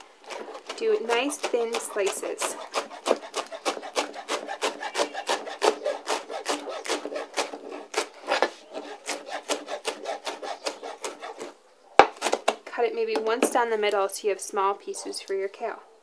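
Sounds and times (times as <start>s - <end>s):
knife chopping on plastic board: 0.0s - 12.6s.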